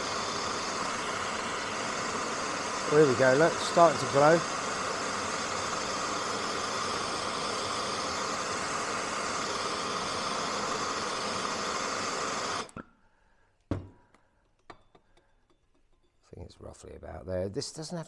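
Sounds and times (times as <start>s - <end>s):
blowtorch flame hissing: 0.0s - 12.8s.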